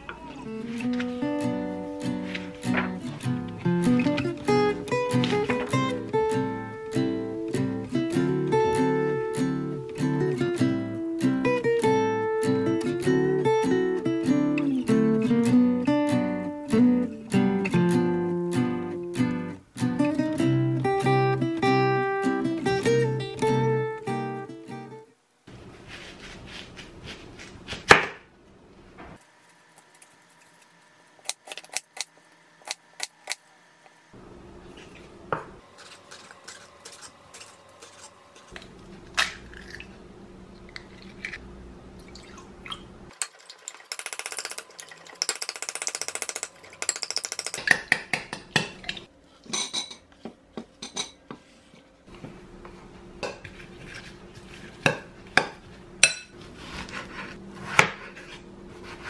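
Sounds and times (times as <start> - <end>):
knife cutting onion on board: 25.8 - 28.3, 53.2 - 59.0
fork beating eggs against glass: 35.7 - 38.6.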